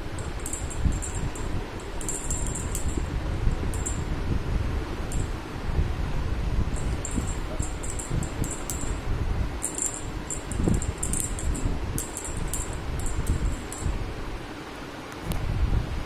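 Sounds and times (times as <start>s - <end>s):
jingle bell tinkling: 0.2s - 4.1s, 6.8s - 9.0s, 9.6s - 13.9s
rustling and handling noise: 6.7s - 14.0s.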